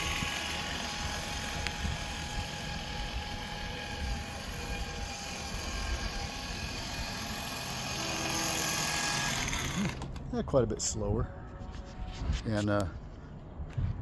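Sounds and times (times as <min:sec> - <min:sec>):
electric motor whining: 0:00.0 - 0:10.2.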